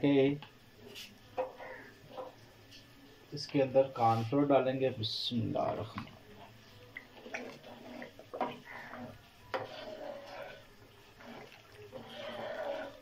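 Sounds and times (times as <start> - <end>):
ladle stirring soup: 0.8 - 2.8, 5.6 - 13.0.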